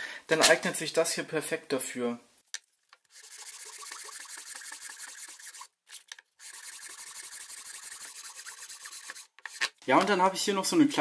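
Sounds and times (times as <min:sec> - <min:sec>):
sandpaper scratching on wood: 0:03.1 - 0:05.7, 0:06.4 - 0:09.6.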